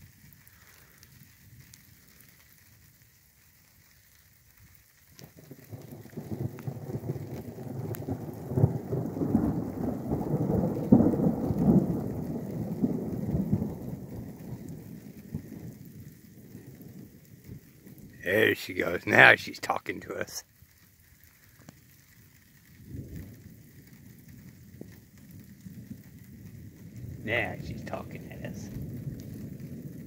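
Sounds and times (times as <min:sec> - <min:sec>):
light rain: 0:00.0 - 0:30.0
thunder rumbling: 0:05.3 - 0:20.4, 0:22.5 - 0:30.0.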